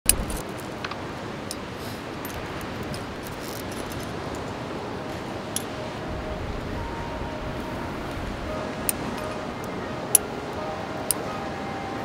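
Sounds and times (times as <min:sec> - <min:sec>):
ocean surf: 0:00.1 - 0:12.0
metallic clinks of climbing gear: 0:01.5 - 0:04.6.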